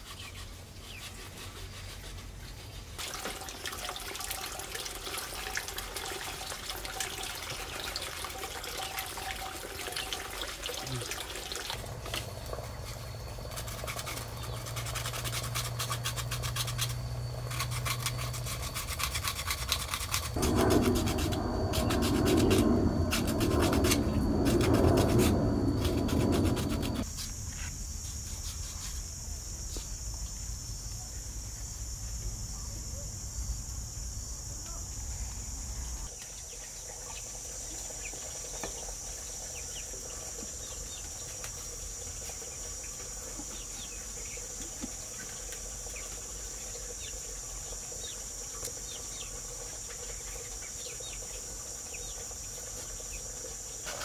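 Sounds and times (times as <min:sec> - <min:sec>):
bamboo being scraped: 0:00.0 - 0:03.0, 0:12.8 - 0:27.0, 0:27.6 - 0:29.1
high insect drone: 0:03.1 - 0:54.0.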